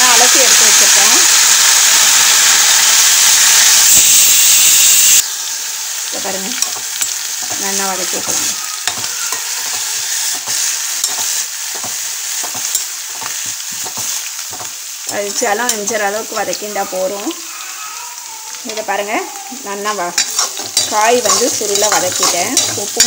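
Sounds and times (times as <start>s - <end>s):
vegetables sizzling in oil: 0.0s - 23.0s
spatula scraping pan: 6.6s - 14.8s, 19.9s - 23.0s.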